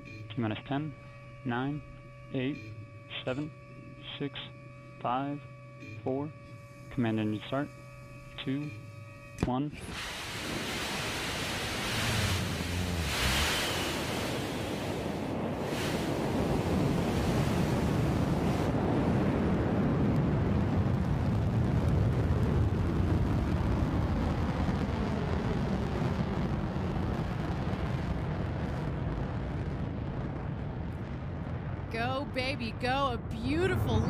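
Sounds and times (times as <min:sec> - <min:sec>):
rocket engine roaring: 0:09.8 - 0:34.0.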